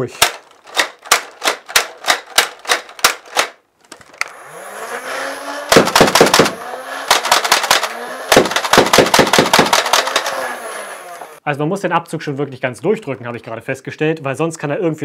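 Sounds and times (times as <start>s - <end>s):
flywheel motor whine: 4.2s - 8.8s, 9.4s - 11.4s
sharp clacks of darts firing: 5.7s - 10.2s.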